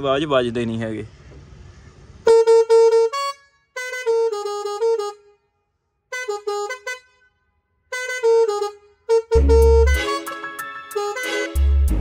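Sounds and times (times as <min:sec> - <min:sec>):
musical air horn playing a tune: 0:02.2 - 0:05.4, 0:06.1 - 0:07.2, 0:07.9 - 0:12.0.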